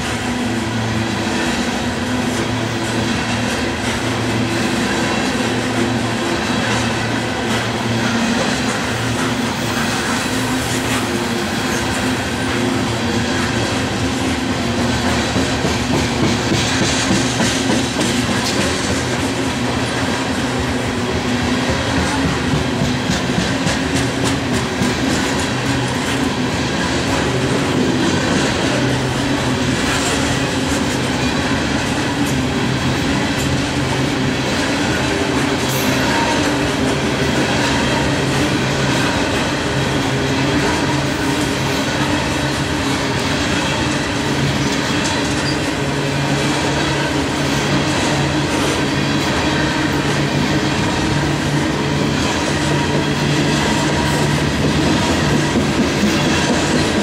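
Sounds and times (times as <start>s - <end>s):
train wheels rolling on rail: 0.0s - 57.0s
wheels clicking over rail joints: 21.7s - 57.0s.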